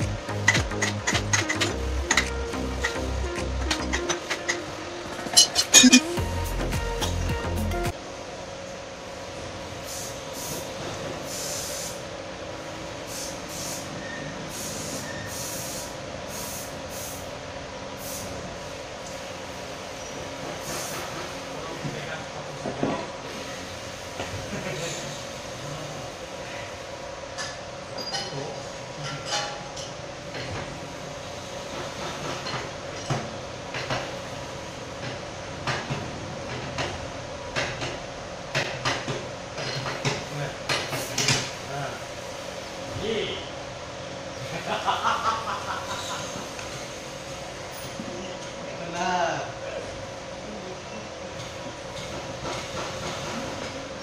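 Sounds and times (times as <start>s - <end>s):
steady hum: 0.0s - 9.7s
mechanical hum: 0.0s - 54.0s
short hissing bursts: 9.8s - 12.1s, 13.0s - 17.3s, 18.0s - 18.8s.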